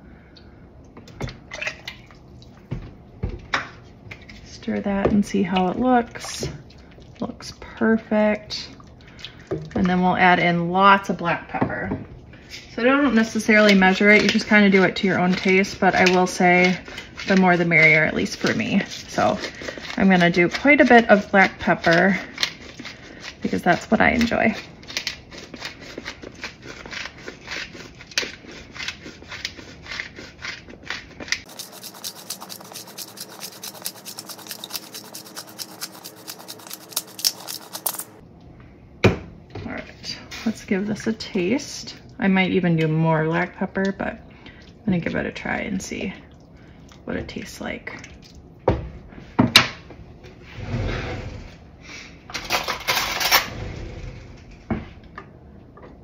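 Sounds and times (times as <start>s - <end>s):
pepper grinder clicking: 31.4s - 38.1s.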